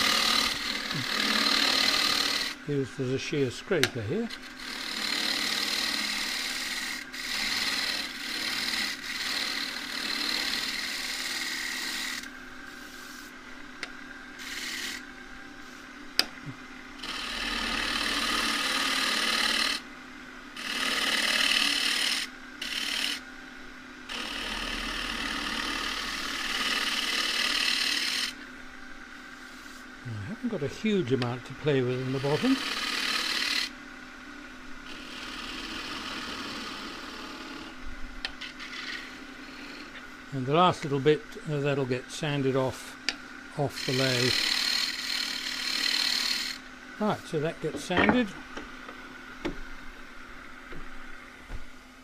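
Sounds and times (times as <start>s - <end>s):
gouge rasping on spinning wood: 0.0s - 3.6s, 4.2s - 13.3s, 14.4s - 15.0s, 17.0s - 19.8s, 20.6s - 23.2s, 24.1s - 28.4s, 30.5s - 33.7s, 34.9s - 37.7s, 38.4s - 40.0s, 43.6s - 48.3s
lathe hum: 0.0s - 52.0s.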